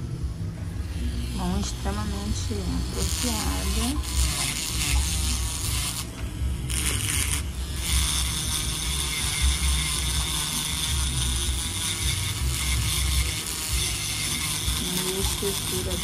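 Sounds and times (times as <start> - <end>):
nail drill grinding whir: 1.0 - 16.0.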